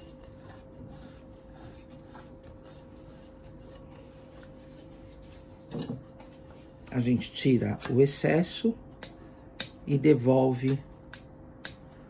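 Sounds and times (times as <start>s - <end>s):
spatula scraping on cake: 0.0s - 8.6s
faint hum: 0.0s - 12.0s.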